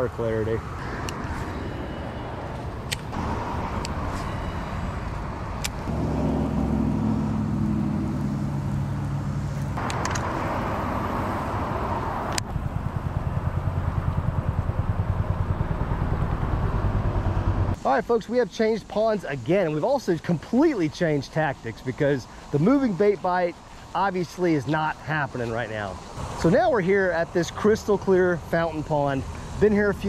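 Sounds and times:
low pulsing: 0.8 - 9.6
sharp clicks: 2.9 - 3.2, 9.8 - 10.3.

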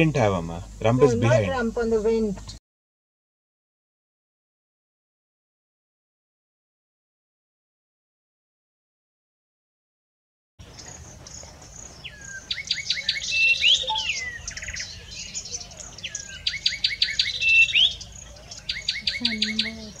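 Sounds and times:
warbler singing: 10.6 - 20.0.

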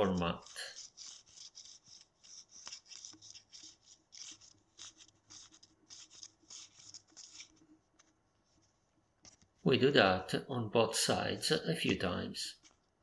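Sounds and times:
magnet rubbing on paper sleeve: 0.0 - 9.7.

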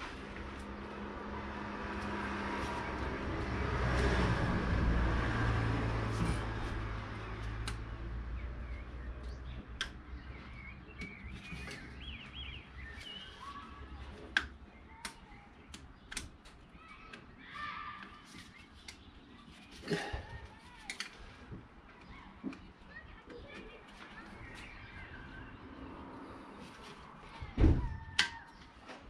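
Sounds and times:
engine hum: 0.0 - 13.2
birds chirping: 7.2 - 20.7, 21.7 - 27.5.

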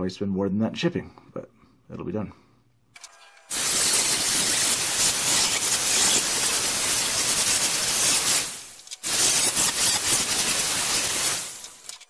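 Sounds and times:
angle grinder grinding steel: 3.0 - 12.0.

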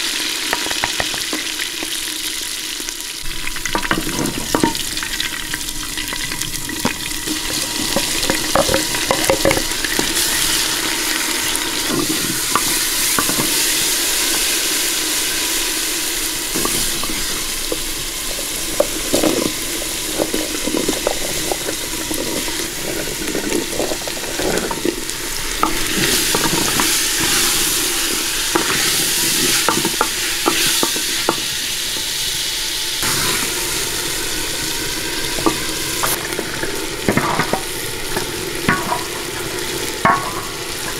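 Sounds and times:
food sizzling in a pot: 0.0 - 40.9
wooden spoon scraping a pot: 7.4 - 13.8, 16.6 - 31.5.

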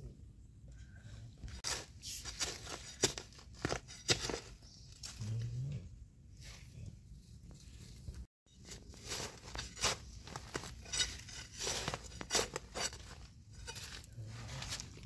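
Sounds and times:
metal blade scraping into dry soil: 1.6 - 4.6, 8.5 - 15.0.

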